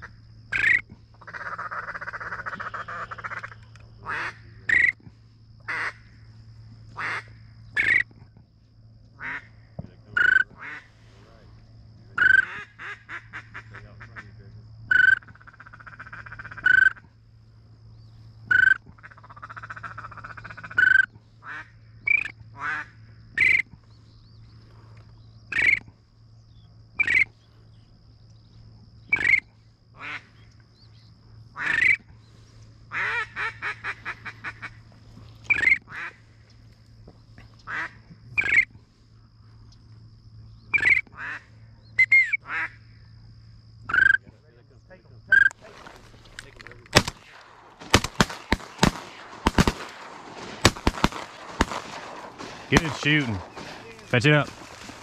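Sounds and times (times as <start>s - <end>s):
duck call quacks: 5.7s - 6.0s, 7.0s - 8.0s, 9.2s - 9.5s, 10.2s - 10.9s, 12.2s - 14.3s, 32.9s - 34.8s, 37.7s - 38.6s, 40.8s - 42.8s
duck call chattering: 12.2s - 14.2s.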